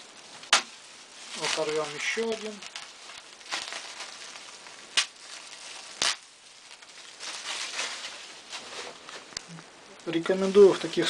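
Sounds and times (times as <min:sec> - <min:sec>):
plastic bag crinkling and rustling: 0:00.0 - 0:11.0
plastic bag sharp snaps: 0:00.4 - 0:06.8.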